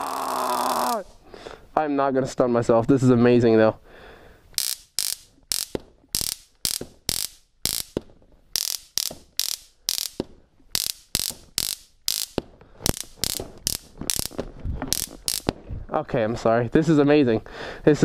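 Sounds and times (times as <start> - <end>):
stun gun crackling: 4.5 - 15.8.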